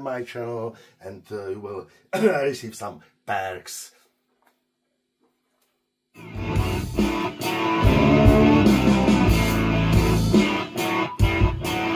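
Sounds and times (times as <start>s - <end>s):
rock music with guitar: 6.2s - 11.9s.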